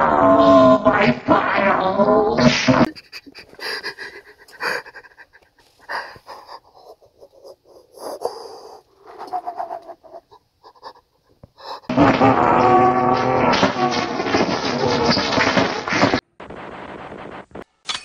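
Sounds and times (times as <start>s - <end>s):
person breathing heavily and wheezing: 2.8s - 12.0s
pitched moan: 2.8s - 13.8s.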